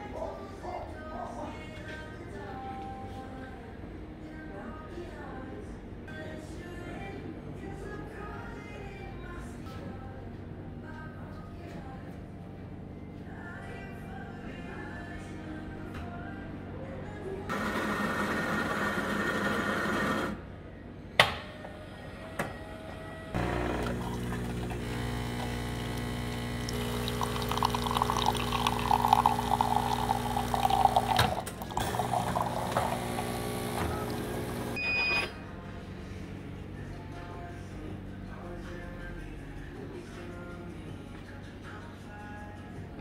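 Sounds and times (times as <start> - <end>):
coffee grinder whirring: 23.4 - 34.8
pump humming: 23.4 - 34.8
coffee splashing into a mug: 23.7 - 24.8, 26.6 - 34.2.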